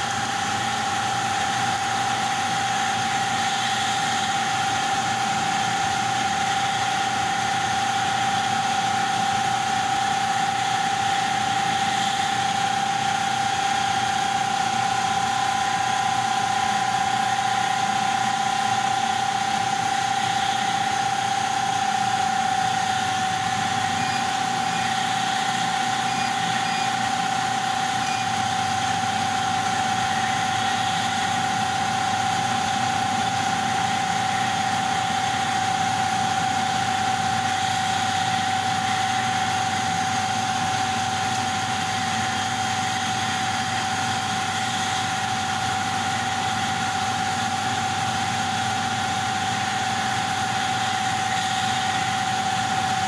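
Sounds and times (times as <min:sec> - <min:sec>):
laser cutter mechanical hum: 0:00.0 - 0:53.0
high whine: 0:08.5 - 0:45.9.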